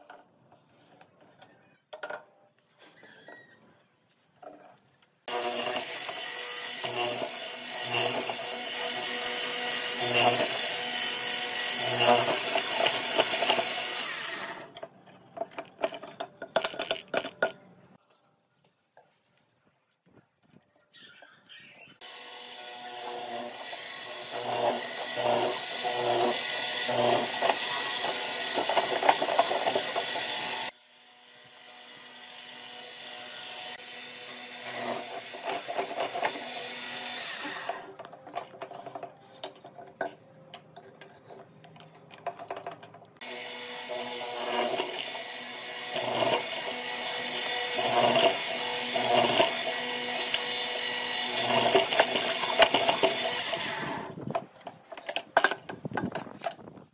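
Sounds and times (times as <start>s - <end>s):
mortiser boring into wood: 5.3s - 17.5s, 22.0s - 30.8s, 31.6s - 39.7s, 42.3s - 56.6s.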